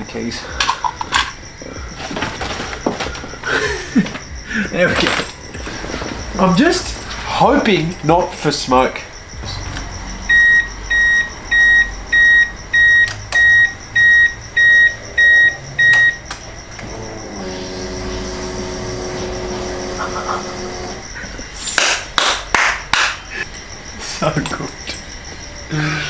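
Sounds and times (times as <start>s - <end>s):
steady electric hum: 0.0s - 26.0s
car warning chime beeping: 9.4s - 21.1s.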